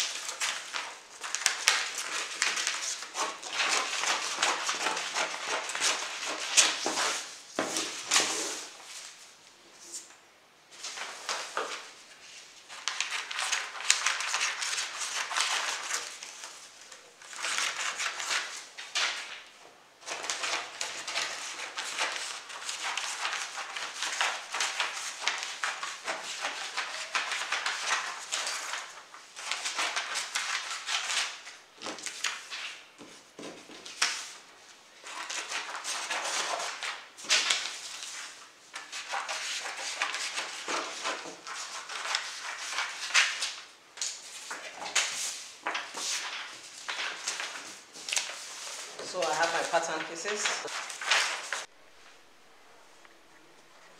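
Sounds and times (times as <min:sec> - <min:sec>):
paper rustling: 0:00.0 - 0:10.1, 0:10.7 - 0:52.2.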